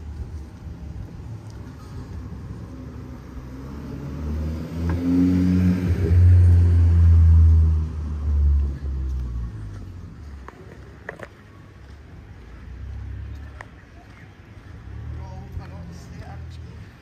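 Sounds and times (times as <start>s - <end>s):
vehicle engine passing by: 0.7s - 10.4s.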